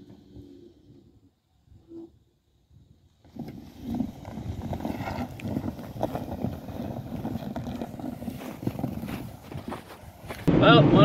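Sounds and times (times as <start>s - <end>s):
tires crunching through snow: 3.1s - 10.5s.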